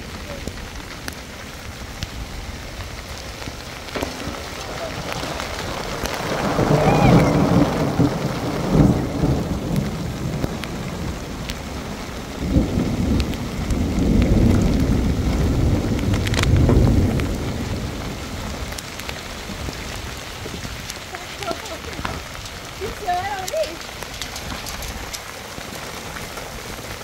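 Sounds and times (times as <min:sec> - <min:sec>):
low rumbles of thunder: 0:00.0 - 0:27.0
steady rain: 0:00.0 - 0:27.0.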